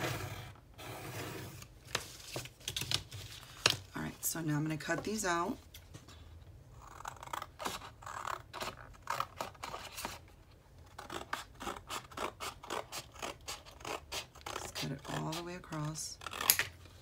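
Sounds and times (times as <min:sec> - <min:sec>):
scissors snipping paper: 0:11.0 - 0:16.6.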